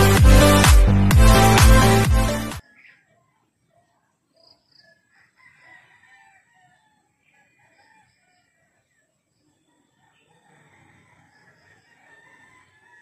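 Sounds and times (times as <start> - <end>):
rooster crowing: 4.8 - 8.9, 9.9 - 13.0.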